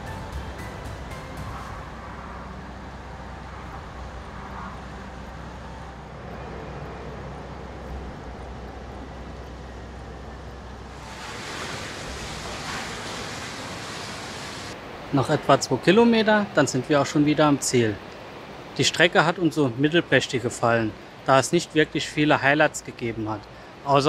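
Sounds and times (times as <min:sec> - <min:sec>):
loud rushing noise: 0:00.0 - 0:07.3, 0:10.9 - 0:15.2
barge engine drone: 0:00.0 - 0:15.1
water noise: 0:00.0 - 0:23.0
wind: 0:00.0 - 0:24.0.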